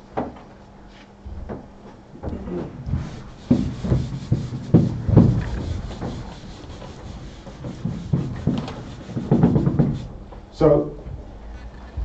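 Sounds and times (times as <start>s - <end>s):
dull knocks: 1.3s - 12.0s
papers rubbing and rustling: 2.7s - 10.3s.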